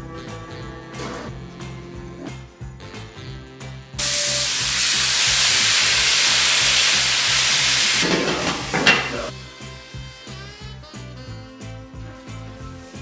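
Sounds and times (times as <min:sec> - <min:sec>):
chicken sizzling in hot oil: 0:04.0 - 0:10.1.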